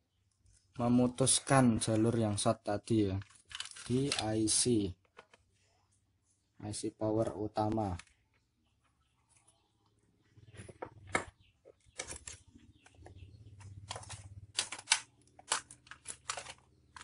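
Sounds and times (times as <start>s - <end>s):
plastic clicks and clatter: 3.2s - 5.5s, 10.7s - 17.0s.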